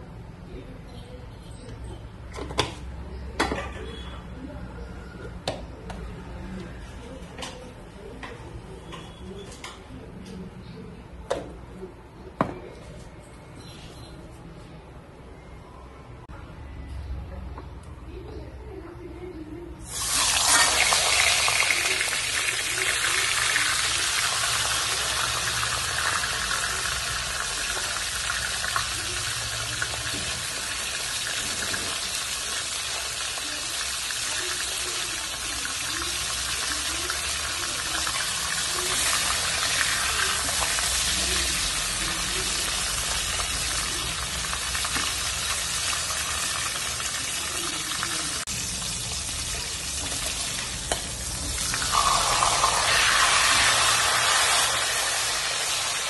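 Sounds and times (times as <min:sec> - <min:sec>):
fish frying in hot oil: 0:19.9 - 0:56.0.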